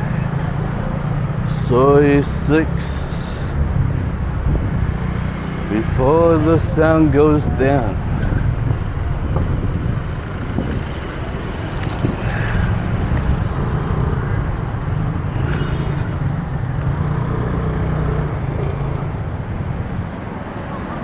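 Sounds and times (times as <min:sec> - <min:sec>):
traffic engine drone: 0:00.0 - 0:21.0.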